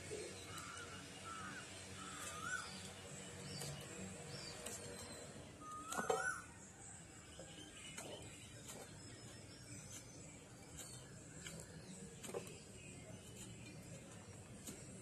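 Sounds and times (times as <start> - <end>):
peeler scraping coconut skin: 2.0 - 6.2, 7.9 - 15.0.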